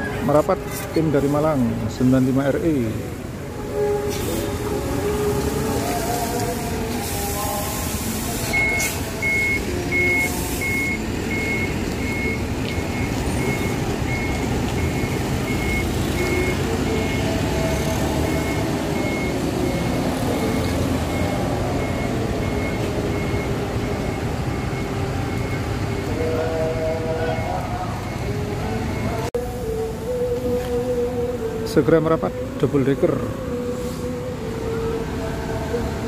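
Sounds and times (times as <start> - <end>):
diesel engine rumbling: 0.0 - 36.0
warning beeper: 8.5 - 29.3.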